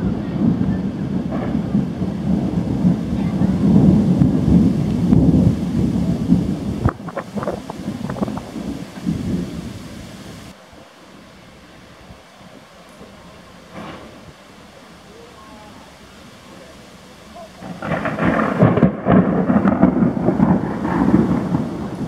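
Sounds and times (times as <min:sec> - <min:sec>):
rolling thunder: 0:00.0 - 0:10.8, 0:13.0 - 0:14.9, 0:15.7 - 0:22.0
thunder crackles: 0:00.0 - 0:22.0.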